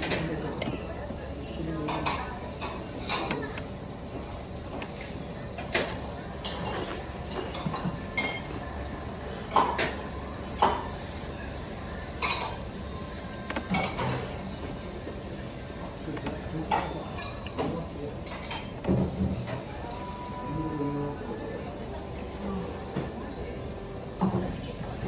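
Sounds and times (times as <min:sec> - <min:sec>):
low background hum: 0:00.0 - 0:25.0
dishes clinking: 0:01.7 - 0:03.7, 0:04.7 - 0:08.8, 0:09.4 - 0:11.1, 0:12.1 - 0:12.8, 0:13.5 - 0:14.7, 0:16.1 - 0:19.6.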